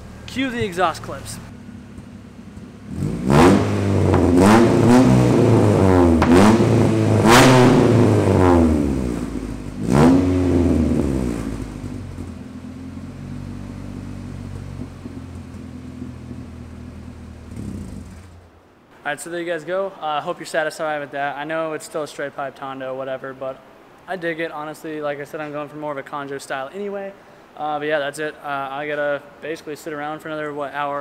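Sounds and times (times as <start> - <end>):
car engine revving: 0.0 - 18.6.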